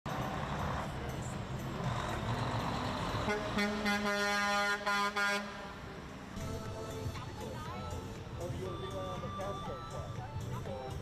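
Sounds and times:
heavy truck road rumble: 0.1 - 11.0
truck air horn: 3.2 - 5.8.

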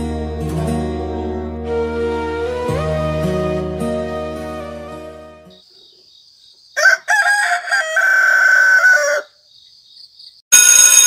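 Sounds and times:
soft background music: 0.0 - 5.6
rooster crowing: 6.8 - 9.4.

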